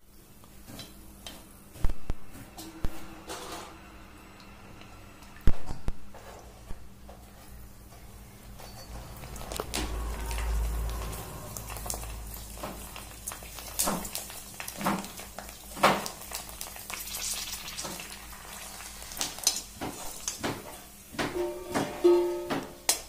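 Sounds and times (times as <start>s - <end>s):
food sizzling in hot oil: 9.8s - 21.2s.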